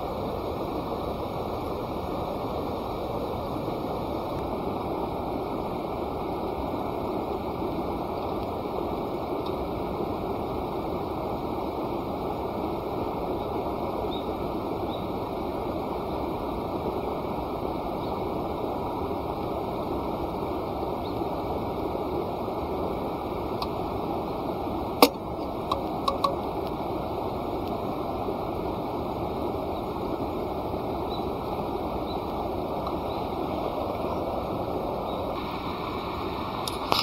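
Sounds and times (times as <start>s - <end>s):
campfire hissing: 0.0s - 37.0s
fire popping and crackling: 2.6s - 11.9s, 18.6s - 33.9s.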